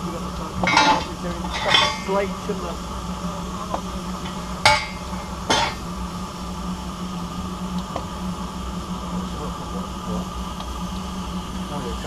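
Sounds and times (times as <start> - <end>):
low hum: 0.0 - 12.0
metal tools clanking: 0.6 - 2.2.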